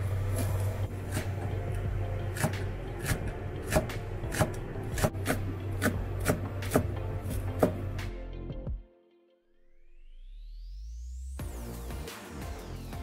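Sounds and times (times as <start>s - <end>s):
knife chopping on cutting board: 2.3s - 7.9s.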